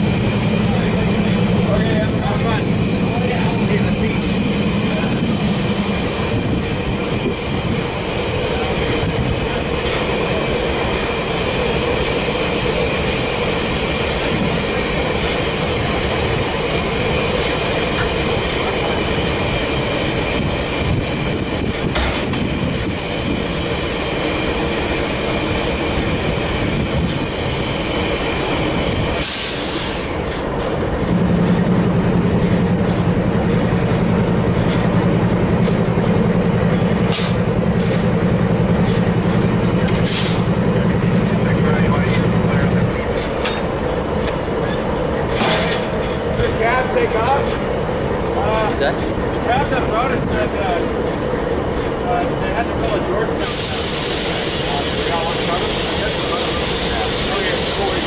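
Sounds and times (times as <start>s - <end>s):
diesel engine drone with whine: 0.0s - 58.0s
air hiss: 29.2s - 30.8s, 37.1s - 37.5s, 40.0s - 40.6s, 53.4s - 58.0s.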